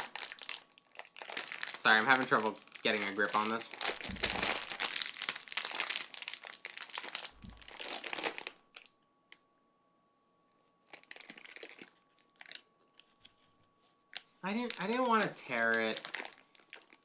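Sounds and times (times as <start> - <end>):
plastic bag crinkling: 0.0 - 9.0, 10.8 - 13.5, 14.1 - 17.0.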